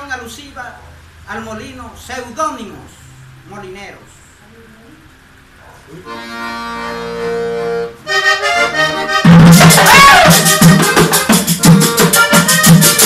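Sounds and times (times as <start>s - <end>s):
accordion: 5.9s - 13.0s
hand drum beat: 9.3s - 13.0s
metal scraper rhythm: 9.3s - 13.0s.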